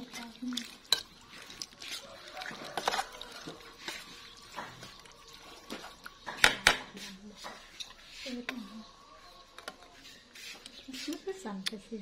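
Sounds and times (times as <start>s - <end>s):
metal spoon scraping metal pot: 0.9s - 4.6s.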